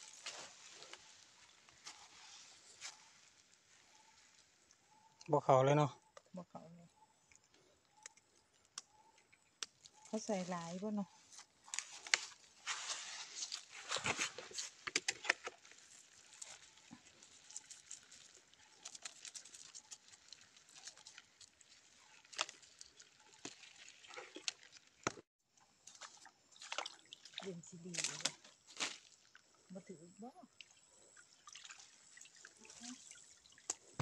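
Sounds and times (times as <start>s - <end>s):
fish trap rustling and crackling: 0.0s - 4.7s, 9.6s - 25.2s.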